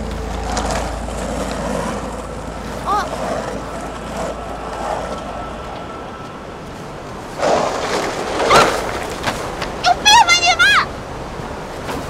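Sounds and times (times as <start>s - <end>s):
skateboard wheels rolling: 0.0s - 12.0s
person crying out: 2.8s - 3.2s.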